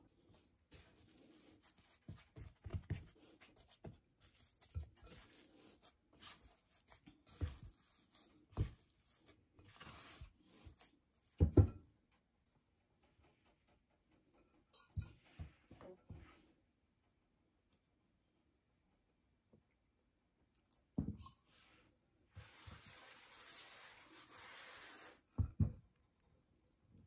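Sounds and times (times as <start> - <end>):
spatula scraping dough in bowl: 0.7 - 11.0.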